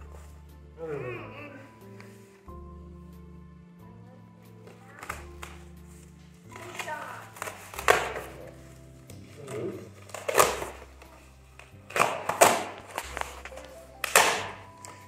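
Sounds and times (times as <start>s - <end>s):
soft background music: 0.0s - 15.0s
knocks and rustles of packaging: 6.4s - 15.0s.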